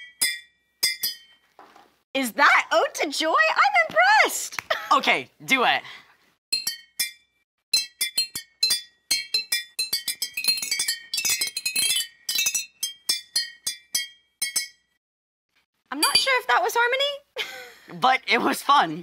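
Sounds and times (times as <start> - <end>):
glass jars struck ringing notes: 0.0 - 1.5, 6.5 - 15.0, 16.0 - 16.4.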